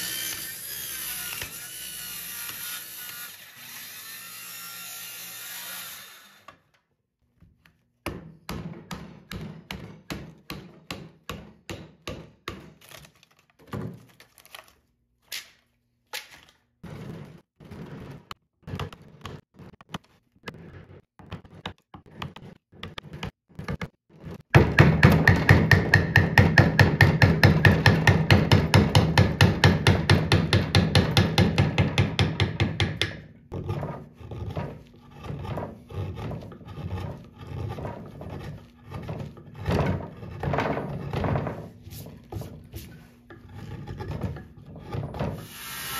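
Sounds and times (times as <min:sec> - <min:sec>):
electric saw cutting wood: 0:00.0 - 0:06.6, 0:45.4 - 0:45.9
hammer striking wood chisel: 0:08.0 - 0:12.8, 0:24.5 - 0:33.3.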